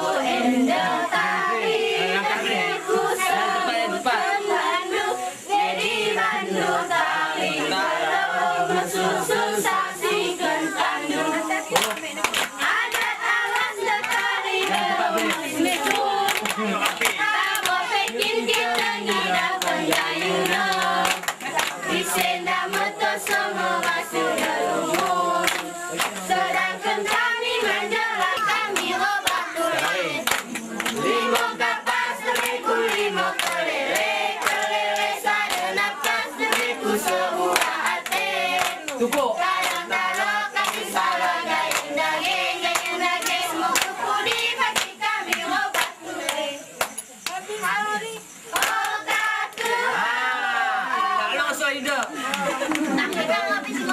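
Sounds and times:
girls chanting together: 0.0 - 53.9
quick hand claps: 11.7 - 47.4, 48.5 - 49.8, 51.9 - 53.9.

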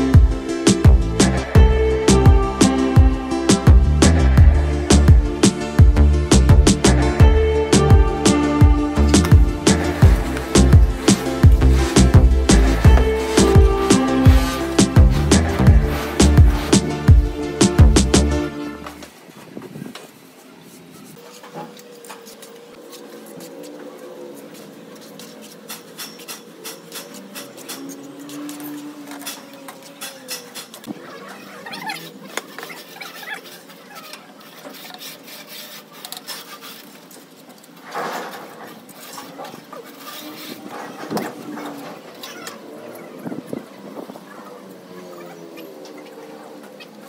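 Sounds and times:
trowel scraping on cement: 9.6 - 17.1, 24.4 - 44.0
animal calling: 20.9 - 36.9, 38.5 - 47.0
trowel scraping and tapping mortar: 25.1 - 31.0.

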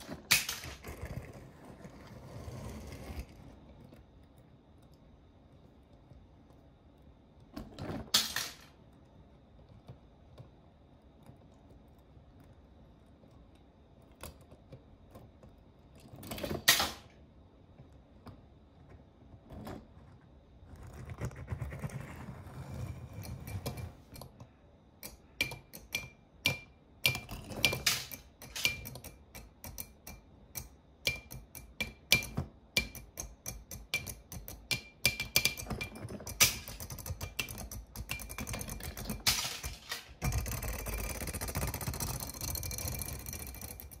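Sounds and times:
toy cars clacking together: 0.0 - 0.8, 8.1 - 8.8, 27.1 - 29.4, 33.8 - 44.0
toy car wheels rolling on wood: 0.0 - 4.0, 35.4 - 44.0.

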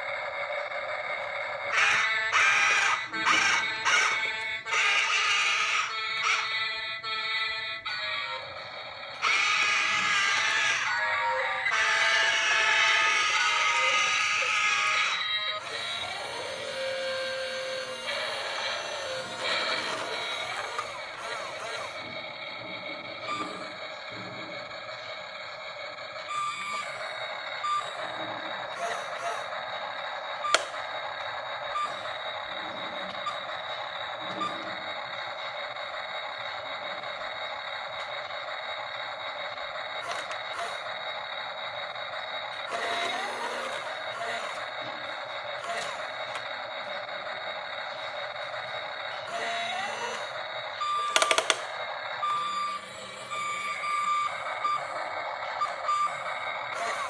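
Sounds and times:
toy motors buzzing whir: 0.0 - 57.0.

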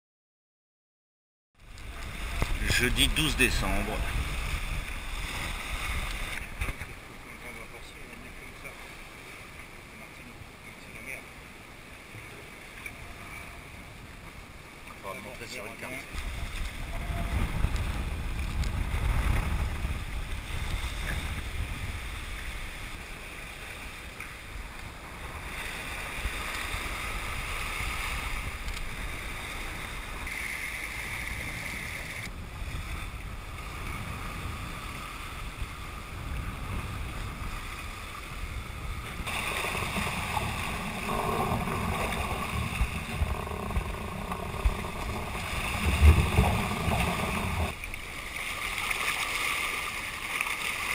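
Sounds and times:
water splashing along a hull: 1.6 - 50.9
wind buffeting microphone: 1.7 - 7.1, 16.1 - 23.2, 24.0 - 48.0.

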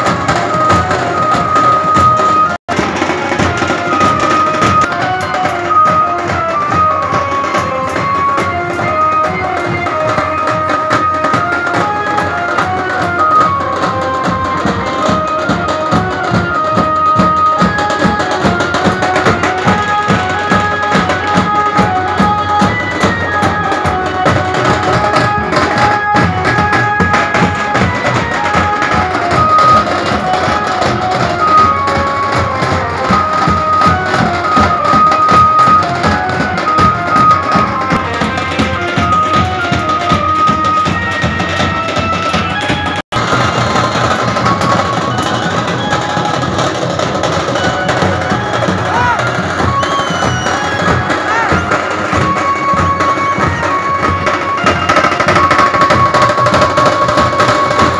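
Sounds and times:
drums beating fast rhythm: 0.0 - 57.9
melody of held notes: 0.0 - 57.9.

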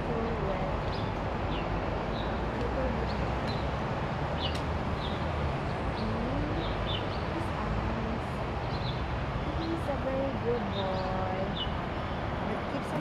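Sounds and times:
small birds chirping: 0.2 - 13.0.

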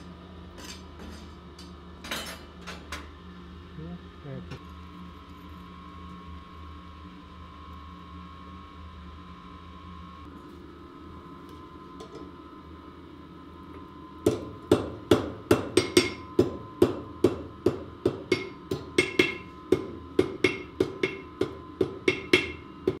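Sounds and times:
low steady hum: 0.0 - 23.0
hammer ringing on anvil: 14.3 - 23.0.

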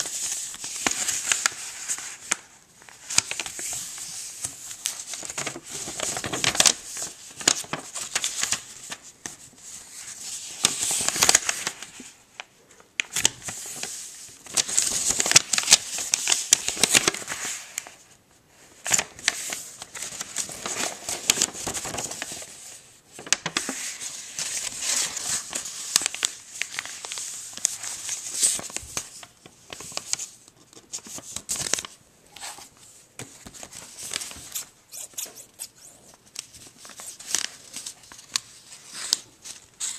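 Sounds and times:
paper rustling and crinkling: 0.0 - 39.9.

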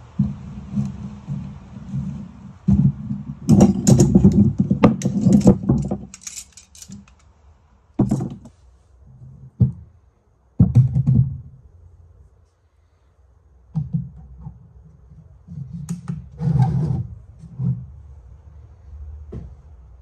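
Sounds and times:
scrap metal clattering and clinking: 1.1 - 7.2, 8.0 - 8.6.

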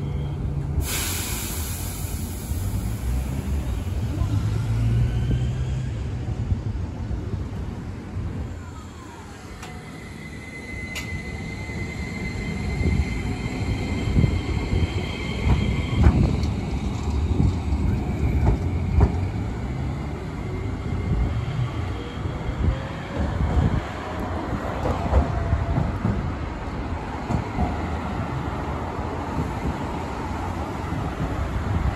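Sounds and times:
tram inverter whine: 0.0 - 31.9
wheels rumbling on track: 1.5 - 10.0, 12.4 - 31.9.

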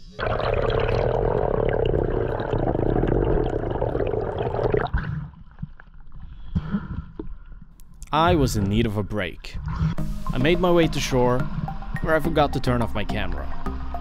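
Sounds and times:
underwater rush and gurgle: 0.0 - 6.1.

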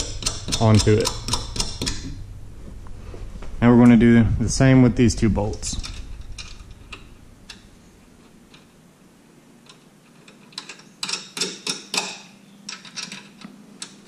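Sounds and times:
metallic clicks of nuts threaded: 0.0 - 2.2, 9.6 - 14.0.

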